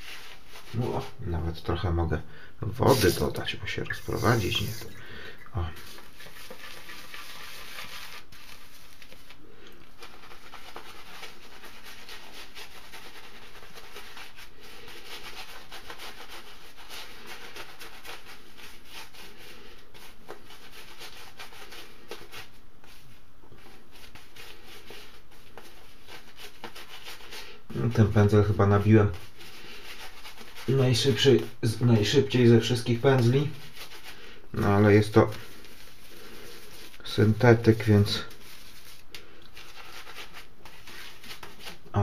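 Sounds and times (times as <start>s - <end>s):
shaving brush swirling lather: 2.8s - 5.0s, 5.8s - 9.4s, 24.0s - 39.0s.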